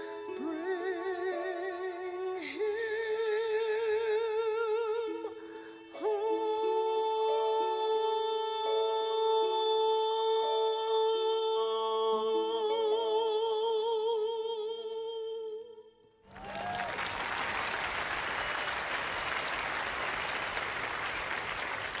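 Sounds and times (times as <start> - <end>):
audience applause: 16.3 - 22.0.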